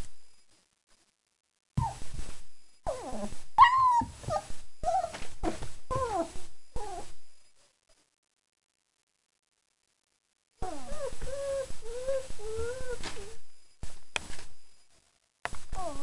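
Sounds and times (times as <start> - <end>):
puppies whining: 2.9 - 7.1, 10.6 - 13.4.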